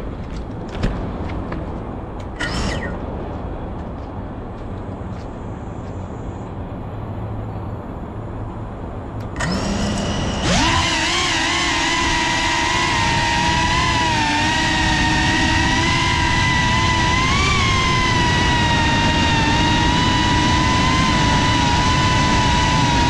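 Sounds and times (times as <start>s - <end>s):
outdoor background noise: 0.0s - 23.0s
drone motors whining: 2.2s - 3.1s, 9.2s - 23.0s.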